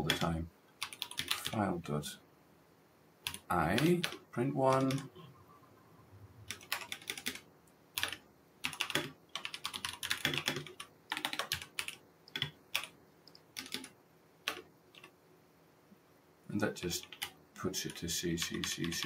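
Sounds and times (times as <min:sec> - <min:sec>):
typing on computer keyboard: 0:00.0 - 0:01.6, 0:03.3 - 0:05.1, 0:06.5 - 0:07.4, 0:08.0 - 0:15.1, 0:17.0 - 0:19.0.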